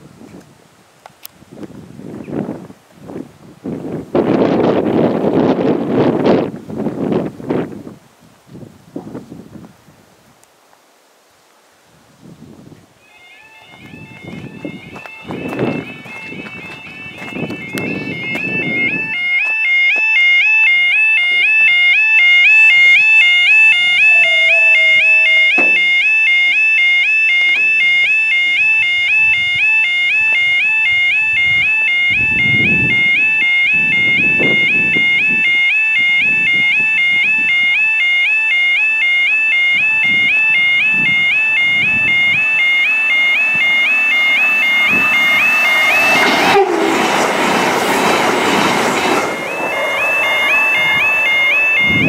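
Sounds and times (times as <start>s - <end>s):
level crossing alarm warbling: 13.0s - 52.0s
low tone sliding down: 20.4s - 35.5s, 39.8s - 52.0s
knock: 25.6s - 26.0s.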